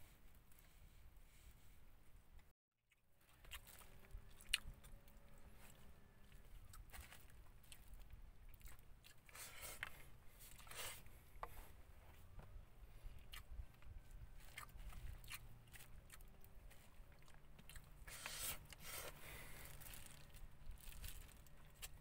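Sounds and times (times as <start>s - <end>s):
chewing and crunching food: 2.9s - 22.0s
food wrapper crinkling: 19.6s - 22.0s.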